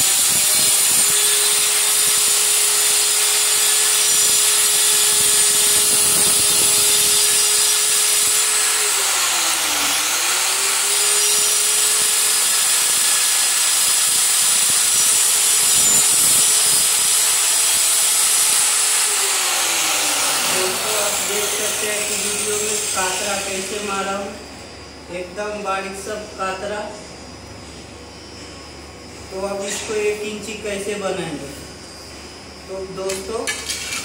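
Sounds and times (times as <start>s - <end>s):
blade grinding into tile: 0.0s - 23.8s, 33.1s - 34.0s
tile cutter motor whine: 0.0s - 24.4s.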